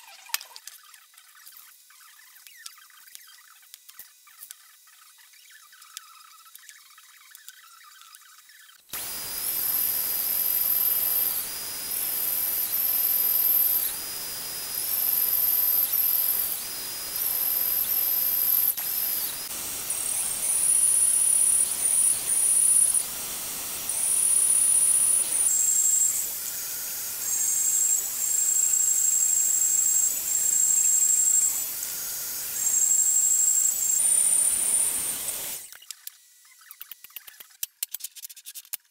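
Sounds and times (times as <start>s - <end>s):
bandsaw squealing through steel: 8.9s - 35.7s.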